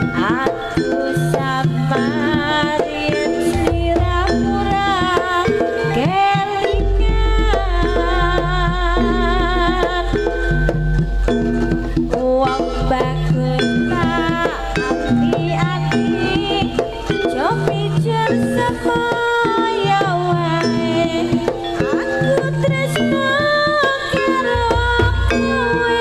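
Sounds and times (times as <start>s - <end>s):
hand drums: 0.0s - 26.0s
high wavering melody: 0.0s - 26.0s.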